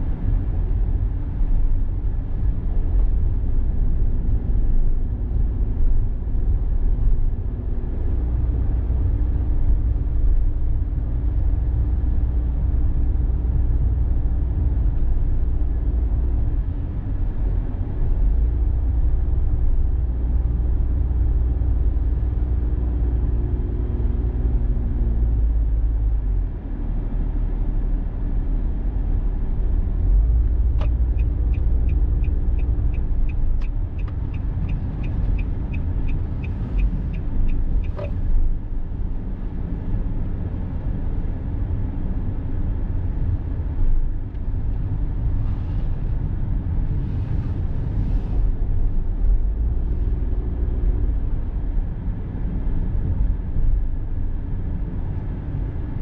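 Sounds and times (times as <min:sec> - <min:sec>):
car road and engine rumble: 0:00.0 - 0:56.0
turn signal ticking: 0:30.6 - 0:38.6.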